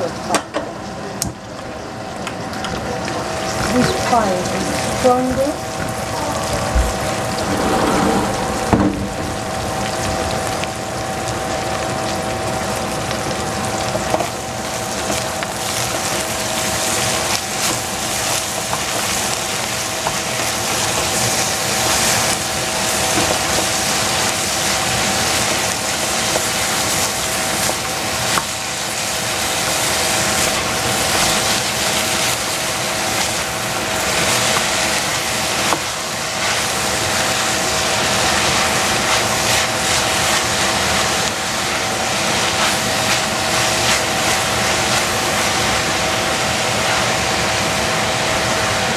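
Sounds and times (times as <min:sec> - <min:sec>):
cabbage sizzling in a saucepan: 0:00.0 - 0:07.4, 0:09.3 - 0:48.9
wooden spatula scraping a pan: 0:07.3 - 0:09.5.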